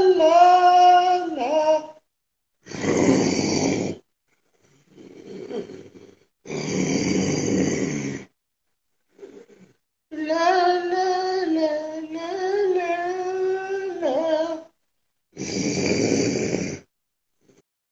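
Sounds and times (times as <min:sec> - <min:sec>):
rough snore-like breaths: 0:02.7 - 0:08.4, 0:09.1 - 0:09.8, 0:15.4 - 0:17.6.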